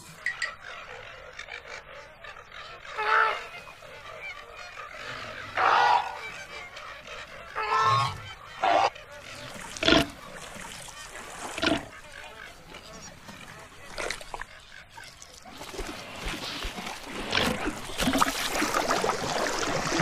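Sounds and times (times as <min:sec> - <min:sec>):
flamingos honking: 0:00.0 - 0:15.2.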